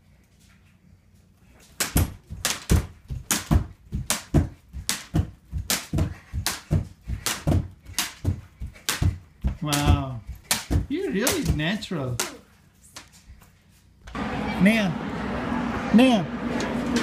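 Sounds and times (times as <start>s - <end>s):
bare feet landing: 1.7s - 12.4s
jump rope slapping wooden floor: 1.8s - 12.4s.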